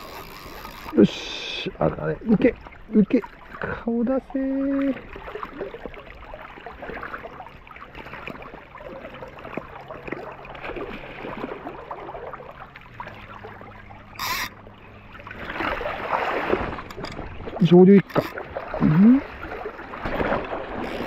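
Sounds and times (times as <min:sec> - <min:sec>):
river current gurgling: 0:00.0 - 0:21.0
fish thrashing in water: 0:04.8 - 0:17.6, 0:18.2 - 0:21.0.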